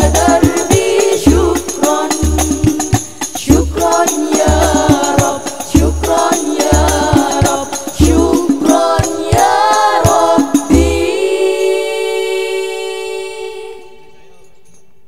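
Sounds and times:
frame drums with bass strokes: 0:00.0 - 0:11.2
women singing in unison: 0:00.0 - 0:14.1.

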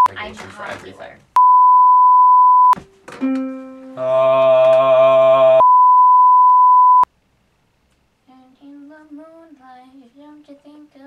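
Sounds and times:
high-pitched test-tone beep: 0:01.4 - 0:02.8, 0:05.6 - 0:07.1.

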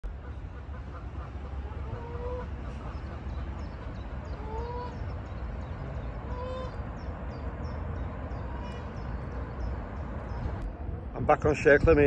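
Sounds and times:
geese calling: 0:00.1 - 0:05.4, 0:06.2 - 0:06.8
wind rumbling on microphone: 0:04.7 - 0:12.0.

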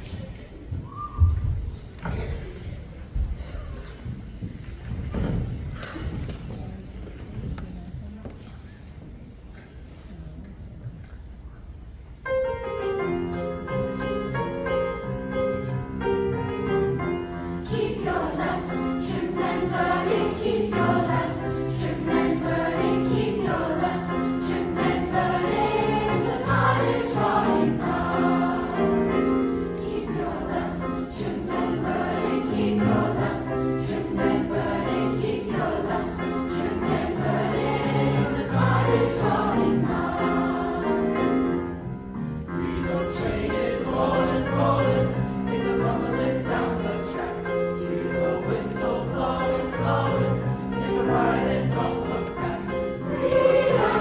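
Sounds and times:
grand piano accompaniment: 0:10.2 - 0:54.0
youth choir singing: 0:17.5 - 0:41.6, 0:42.5 - 0:54.0.

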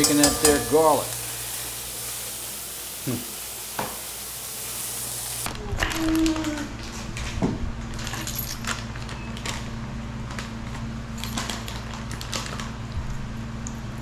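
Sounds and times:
plastic snack packet crinkling: 0:08.0 - 0:12.8.

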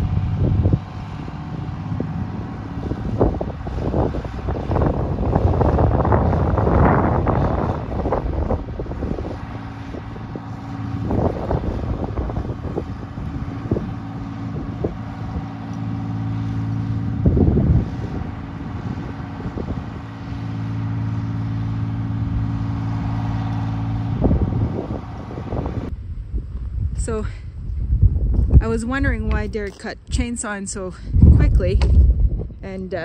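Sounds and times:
diesel engine idling: 0:00.0 - 0:26.4
wind buffeting microphone: 0:00.0 - 0:33.0.

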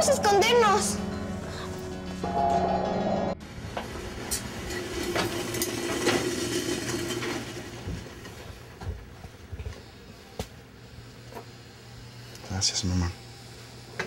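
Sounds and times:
gas burner hissing: 0:07.0 - 0:14.0.

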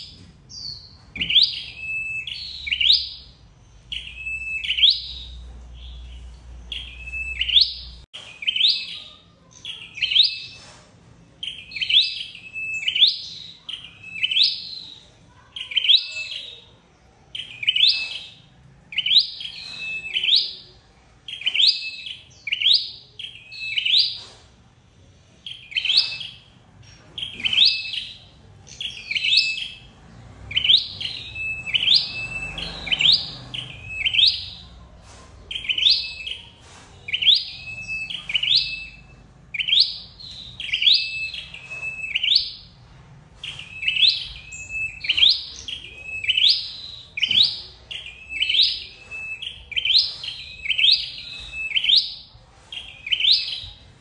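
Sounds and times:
songbird calling: 0:00.0 - 0:10.6, 0:30.5 - 0:42.7, 0:43.4 - 0:53.9.

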